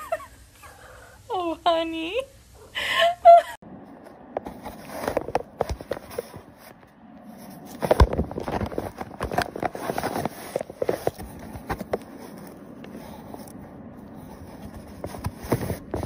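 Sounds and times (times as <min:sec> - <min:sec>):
paper bag crinkling: 0:07.4 - 0:16.0.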